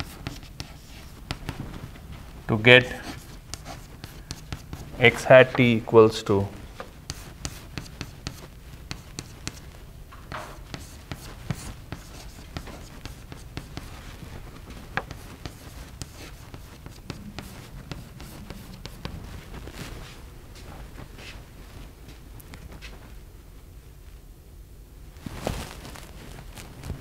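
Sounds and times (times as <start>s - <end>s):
chalk tapping and scratching: 0.0s - 1.7s, 2.8s - 5.8s, 6.7s - 9.7s, 10.3s - 19.4s
low room hum: 0.0s - 27.0s.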